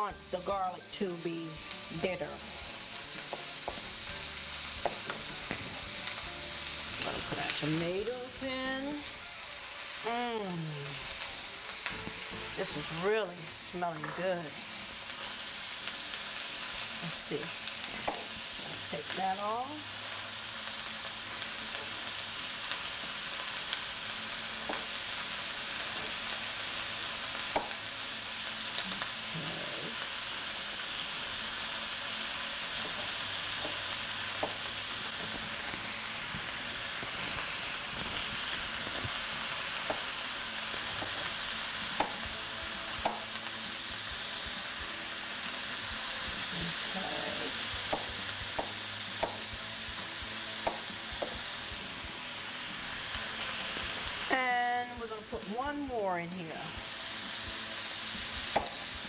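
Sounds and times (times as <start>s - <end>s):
vegetables sizzling in oil: 0.0s - 59.0s.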